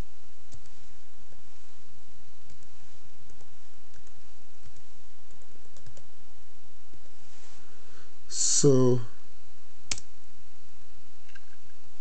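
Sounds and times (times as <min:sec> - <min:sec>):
steady background hiss: 0:00.0 - 0:12.0
laptop keyboard typing: 0:03.3 - 0:06.1.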